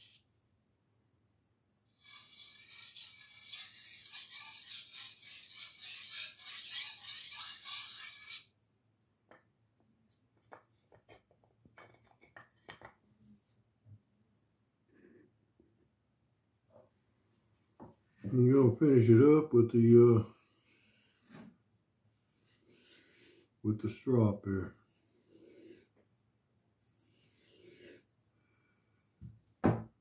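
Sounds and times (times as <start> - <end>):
sharpening stone rasping on knife: 1.9 - 8.5, 22.2 - 23.5, 24.7 - 25.9, 26.8 - 28.1.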